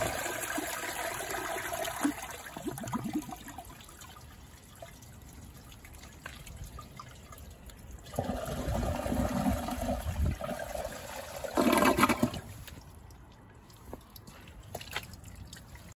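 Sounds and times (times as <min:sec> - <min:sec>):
toilet flushing: 0:00.0 - 0:03.8, 0:08.0 - 0:12.6
water trickling: 0:00.0 - 0:16.0.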